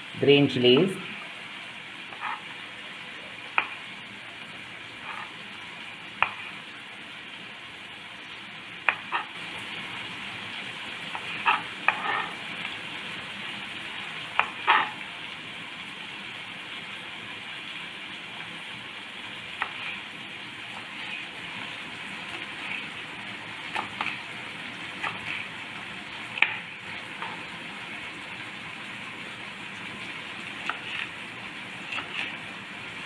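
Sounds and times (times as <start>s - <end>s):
pan sizzling: 0.0s - 33.0s.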